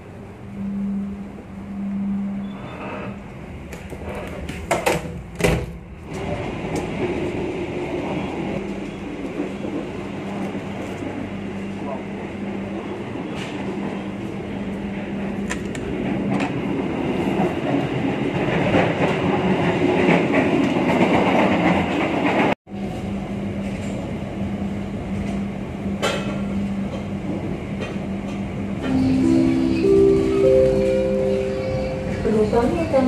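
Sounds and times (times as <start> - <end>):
low hum: 0.0 - 3.8
train wheels rumbling on rails: 2.4 - 33.0.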